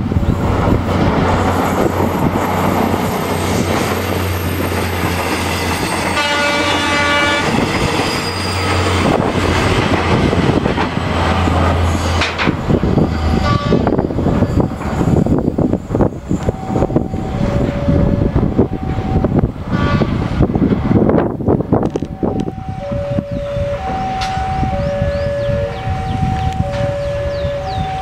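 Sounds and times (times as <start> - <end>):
diesel train engine drone: 0.0 - 28.0
wheels clattering over rail joints: 0.6 - 16.6
train horn: 6.0 - 7.6, 13.4 - 13.9, 19.7 - 20.2.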